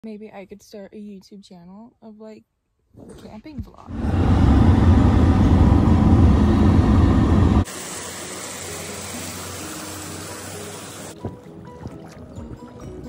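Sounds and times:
car engine and road rumble: 3.9s - 7.7s.

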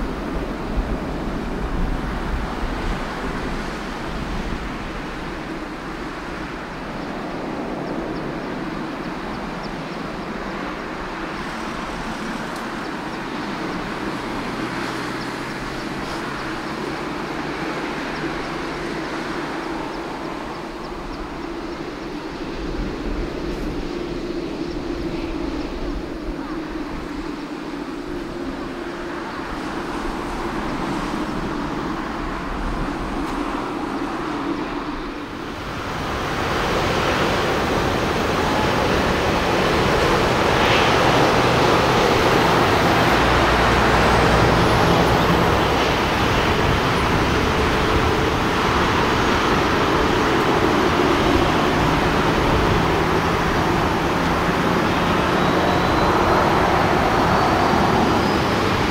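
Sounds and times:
jet engines roaring at takeoff: 0.0s - 58.9s.

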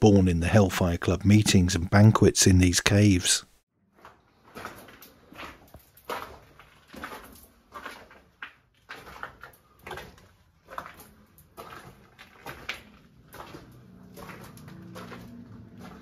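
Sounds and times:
footsteps crunching on gravel: 4.0s - 16.0s.

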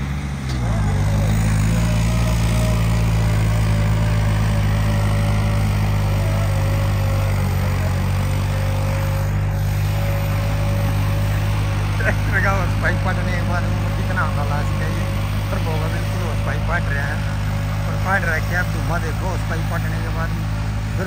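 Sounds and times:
tractor diesel engine droning: 0.0s - 21.0s.

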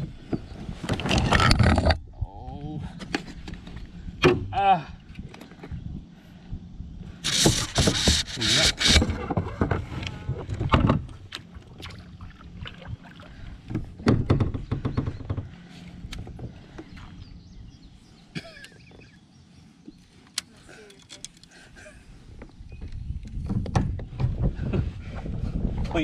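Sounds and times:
water splashing: 11.2s - 13.7s
gear knocking on plastic hull: 13.6s - 16.5s.

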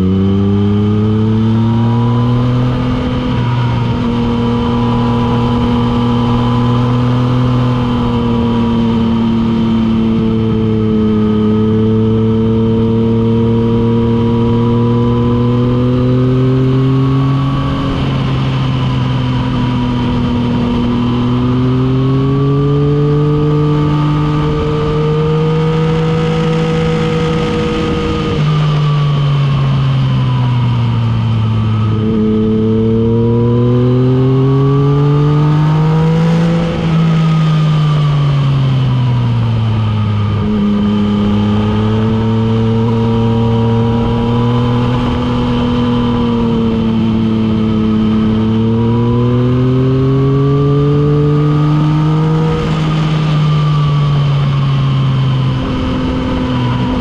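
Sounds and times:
wind rush: 51.9s - 57.0s.

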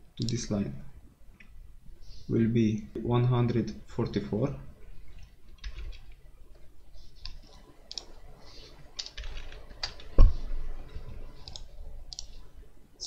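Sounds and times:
keyboard keys clicking: 7.2s - 8.1s, 9.0s - 10.3s.

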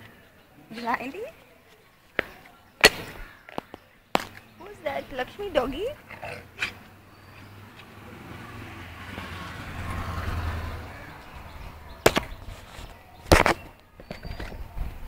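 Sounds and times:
motor vehicle passing: 4.6s - 13.8s.

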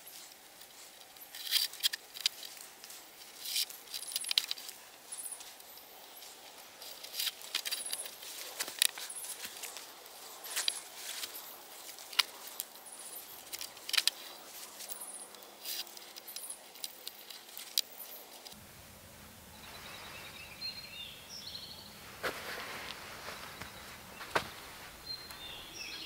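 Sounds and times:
cord rustling and clicking: 0.0s - 18.6s
small birds chirping: 0.0s - 26.0s.

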